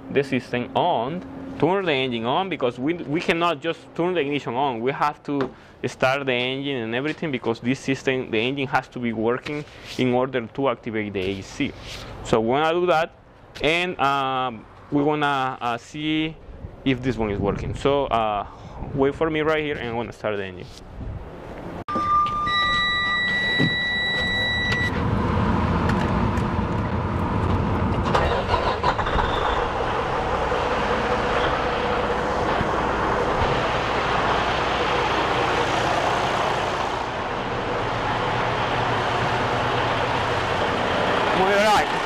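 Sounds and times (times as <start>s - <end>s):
electronic warning beep: 21.9s - 25.0s
diesel engine idling: 25.0s - 42.0s.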